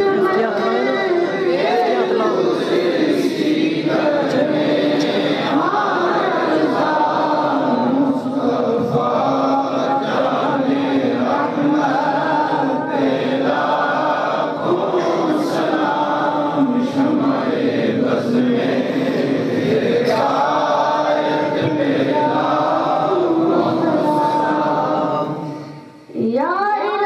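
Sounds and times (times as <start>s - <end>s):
voices chanting along: 0.0s - 25.8s
boy chanting into a microphone: 0.0s - 27.0s.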